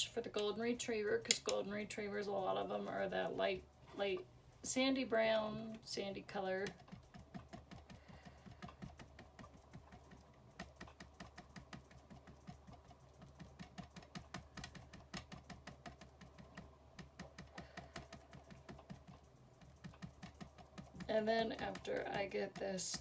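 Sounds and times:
ink pad tapping on stamp: 0:06.8 - 0:23.0.

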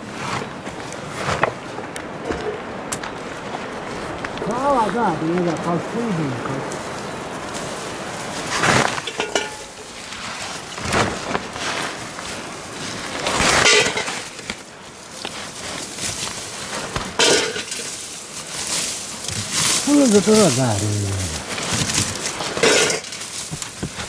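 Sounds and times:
dried corn cobs clattering: 0:06.6 - 0:24.0
plastic tarp rustling: 0:07.6 - 0:24.0.

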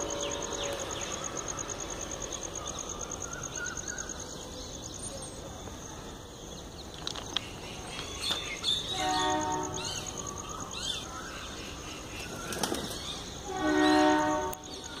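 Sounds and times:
small birds chirping: 0:00.0 - 0:15.0
horn blasts of a low chord: 0:08.9 - 0:09.9, 0:13.5 - 0:14.7.

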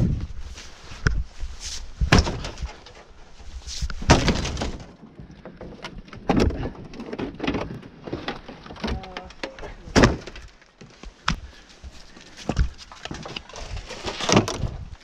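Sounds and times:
debris knocking and cracking: 0:02.0 - 0:03.1, 0:04.0 - 0:11.5.

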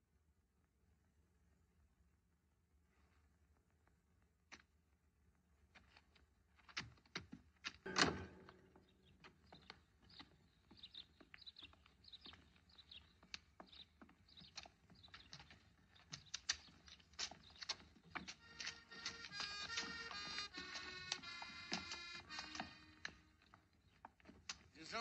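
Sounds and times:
faint irregular clicks and taps: 0:05.6 - 0:08.6, 0:09.2 - 0:24.8
sharp knock: 0:07.9 - 0:08.8.

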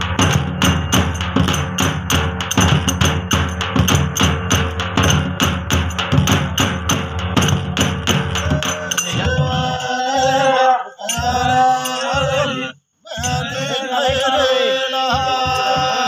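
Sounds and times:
drumming on large drums: 0:00.0 - 0:10.5, 0:11.2 - 0:12.6, 0:13.2 - 0:16.0
soft drum beat: 0:00.0 - 0:16.0
men chanting in unison: 0:07.7 - 0:16.0.

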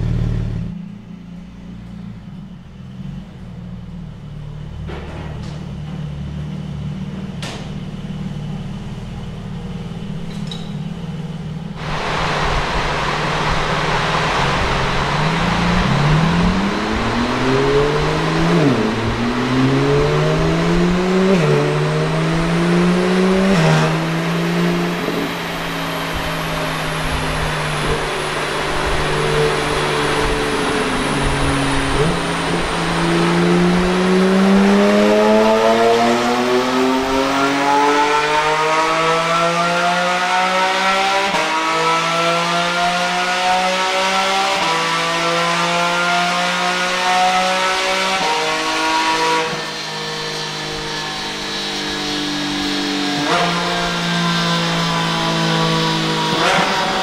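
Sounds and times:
car engine revving on dyno: 0:11.0 - 0:57.0
rushing noise: 0:11.7 - 0:37.6.

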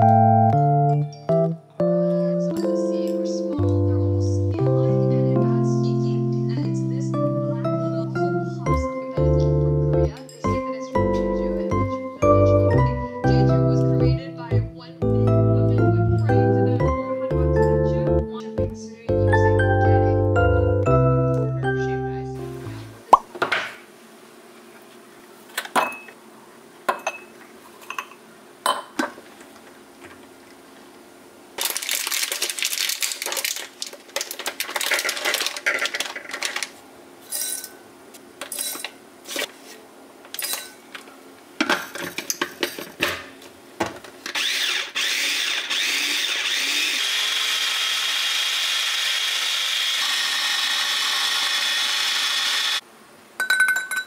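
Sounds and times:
ice cubes clinking into glass: 0:31.6 - 0:36.7, 0:53.4 - 0:54.0
plastic bag rustling: 0:31.6 - 0:37.3
electric food chopper grinding: 0:44.3 - 0:52.8.

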